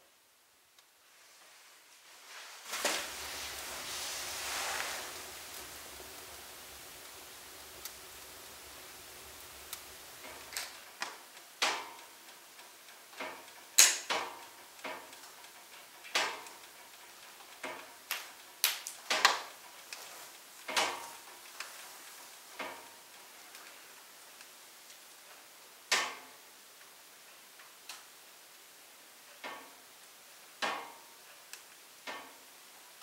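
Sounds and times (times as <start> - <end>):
faint steady hiss: 0.0 - 33.0
firewood crackling and popping: 2.0 - 28.6.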